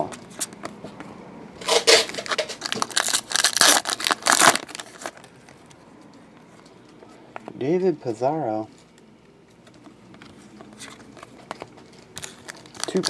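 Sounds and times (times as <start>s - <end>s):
foil wrapper crinkling: 1.7s - 5.3s, 11.0s - 13.0s.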